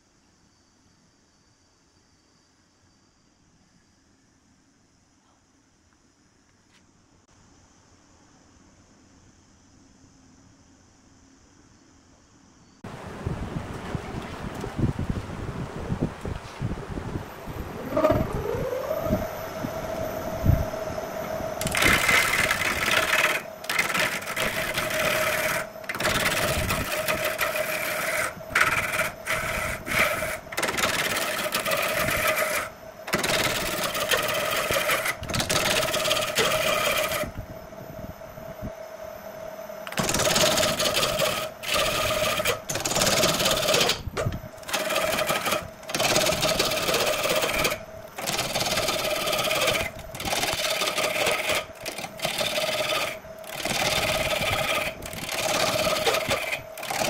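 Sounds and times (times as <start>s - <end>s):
wood lathe humming: 17.2s - 37.4s, 39.8s - 57.0s.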